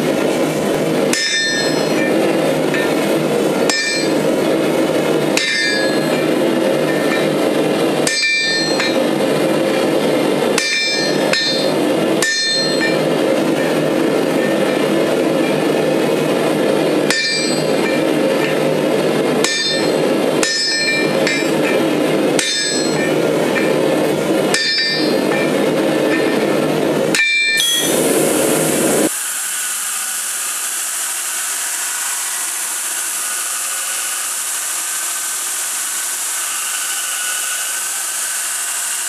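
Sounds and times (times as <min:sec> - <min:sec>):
steady rushing noise: 0:00.0 - 0:29.3
hammer striking hot steel on anvil: 0:01.0 - 0:29.1.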